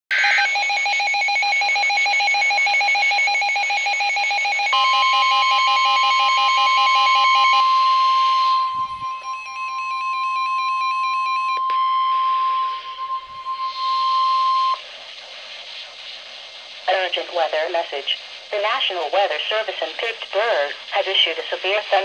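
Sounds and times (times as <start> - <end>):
electronic alarm beeping: 0.1 - 14.8
steady warning tone: 0.1 - 22.0.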